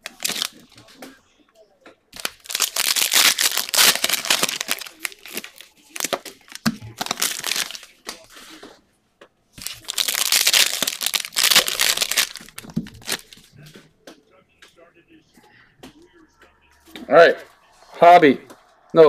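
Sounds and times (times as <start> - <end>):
wrapper tearing and crinkling: 0.0 - 0.7, 2.2 - 8.0, 9.6 - 13.4.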